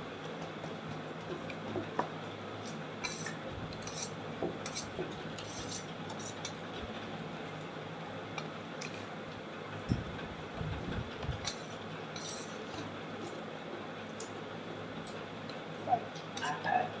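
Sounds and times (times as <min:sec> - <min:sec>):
steady low hum: 0:00.0 - 0:17.0
metal spoon scraping steel plate: 0:02.6 - 0:06.6, 0:11.4 - 0:12.7.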